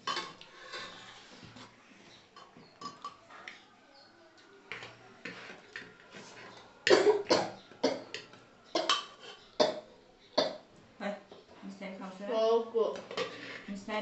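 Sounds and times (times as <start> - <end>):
spoon scraping steel pot: 0.0 - 1.7, 8.1 - 9.6, 13.1 - 13.8.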